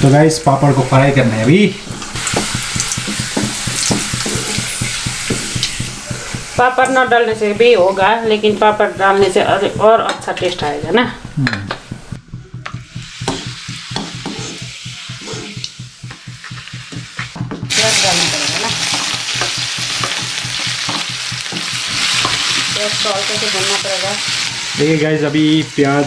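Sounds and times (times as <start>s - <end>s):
food sizzling in hot oil: 0.0s - 10.8s, 12.8s - 26.0s
spatula scraping a pan: 1.8s - 6.6s, 13.2s - 15.8s.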